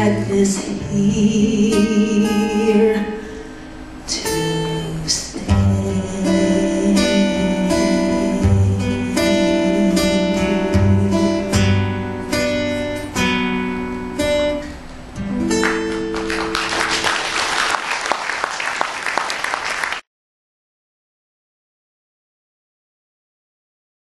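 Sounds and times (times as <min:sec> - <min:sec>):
bossa nova guitar chords: 0:00.0 - 0:17.1
audience applause: 0:15.5 - 0:20.0.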